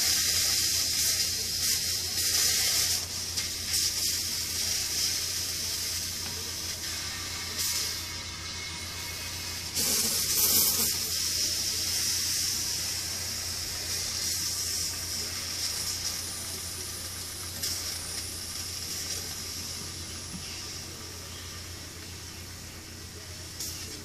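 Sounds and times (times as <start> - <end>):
water spray bursts: 9.8 - 12.6.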